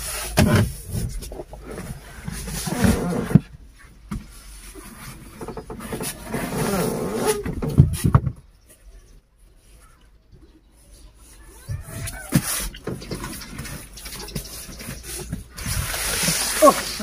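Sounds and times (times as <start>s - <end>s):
elephant trunk rustling bananas: 11.2s - 17.0s.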